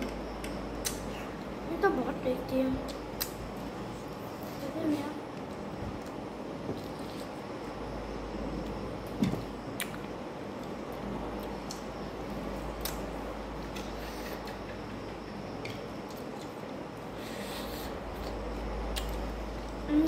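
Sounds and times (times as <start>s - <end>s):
low background hum: 0.0s - 20.0s
person chewing food: 17.6s - 19.8s.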